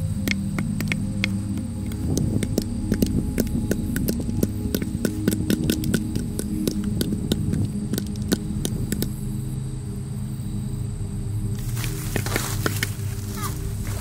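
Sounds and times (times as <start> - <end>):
steady low hum: 0.0 - 14.0
corn kernels clicking into helmet: 0.2 - 9.1.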